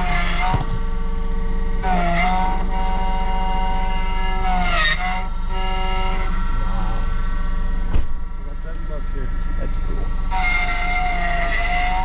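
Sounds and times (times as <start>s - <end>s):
small electric machine whine: 0.0s - 12.0s
vehicle engine idling: 7.0s - 10.3s.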